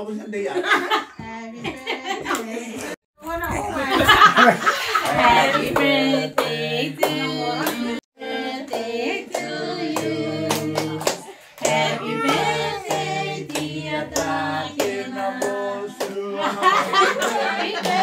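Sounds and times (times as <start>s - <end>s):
group singing: 3.8s - 18.0s
people clapping along: 5.0s - 18.0s.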